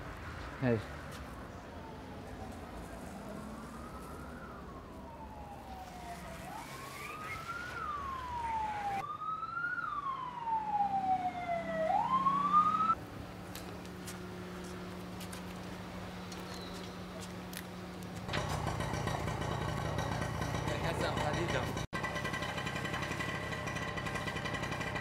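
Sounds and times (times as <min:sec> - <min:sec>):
emergency vehicle siren wailing: 0:01.5 - 0:13.0.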